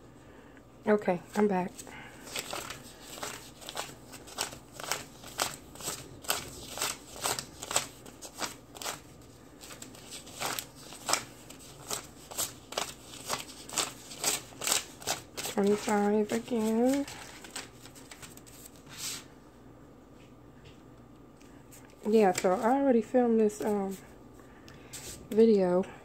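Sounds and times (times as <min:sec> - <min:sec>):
paper bills flicked while counting: 0:02.0 - 0:18.4.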